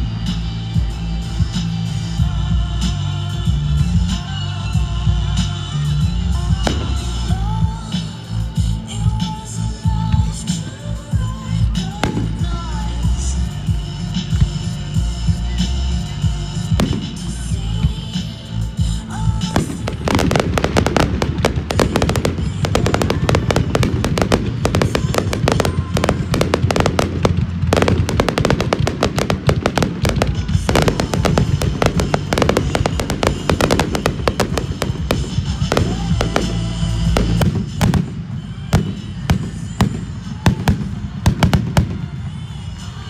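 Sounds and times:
music: 0.0 - 43.0
firework shells bursting: 19.5 - 38.1.

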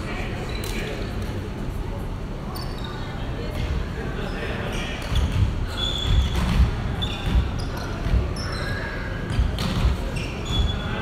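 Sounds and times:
sneakers squeaking on wooden floor: 4.7 - 11.0.

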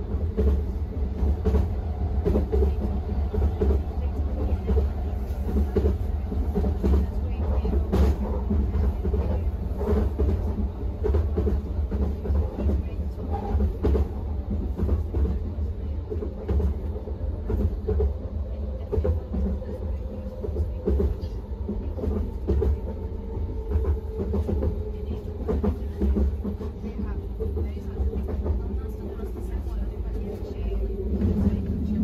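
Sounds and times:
rail clicks: 0.0 - 32.0
train rumbling on track: 0.0 - 32.0.

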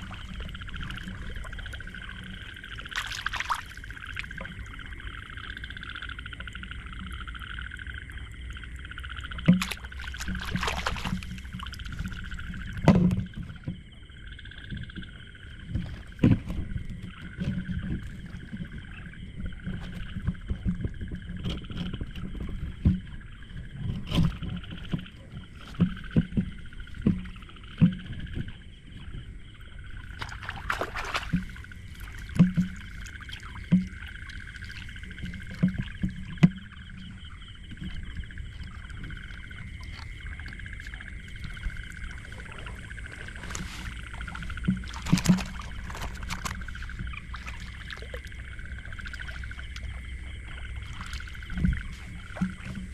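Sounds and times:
frogs calling: 0.0 - 52.9
close knocks and thumps: 14.7 - 29.2, 30.2 - 34.1, 41.4 - 52.9.

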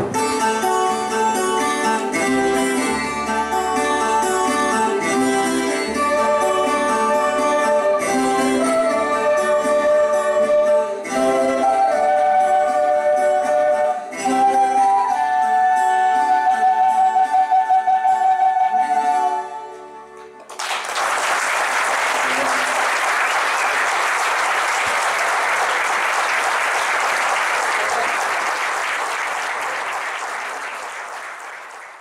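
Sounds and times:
audience applause: 20.4 - 32.0.

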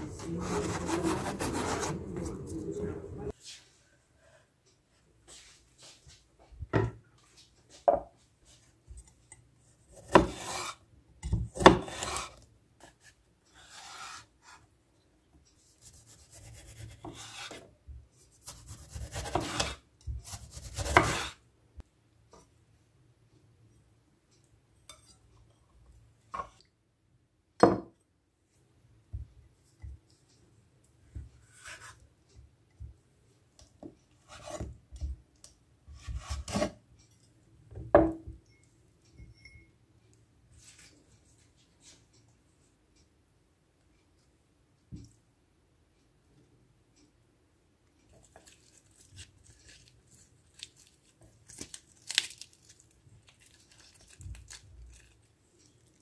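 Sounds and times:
knife cutting on wooden board: 10.0 - 10.8, 11.6 - 12.4, 13.6 - 14.3, 16.0 - 17.6, 18.4 - 21.4.

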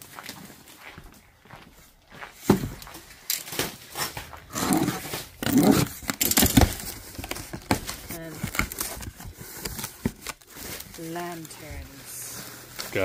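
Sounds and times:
cardboard scraping and rustling: 3.5 - 13.0
box cutter slitting tape: 4.6 - 7.4.

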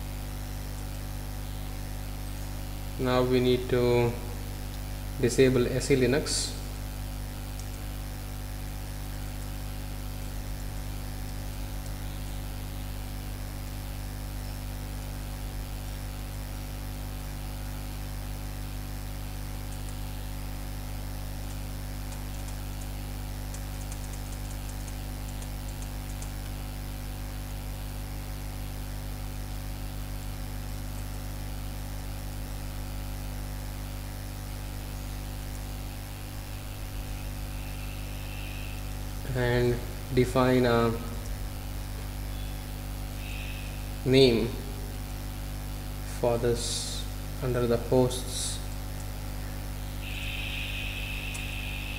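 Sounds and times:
microphone hiss: 0.0 - 31.5, 32.3 - 51.9
electrical mains hum: 0.0 - 51.9
faint ticks: 19.6 - 20.0, 21.4 - 26.6.

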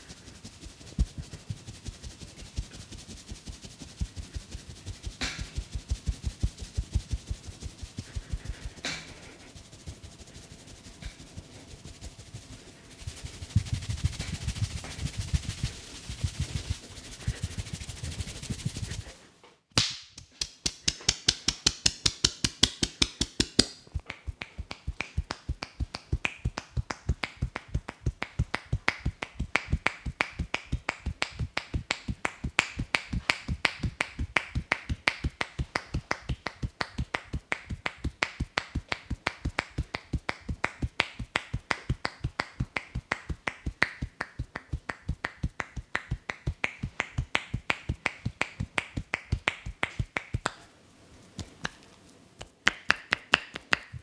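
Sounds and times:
hands tapping on head: 0.2 - 19.1, 19.8 - 50.6, 52.4 - 54.0.

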